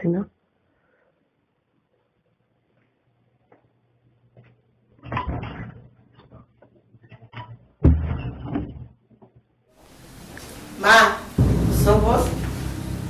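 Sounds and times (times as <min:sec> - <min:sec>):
sharp knock: 0:11.4 - 0:13.0.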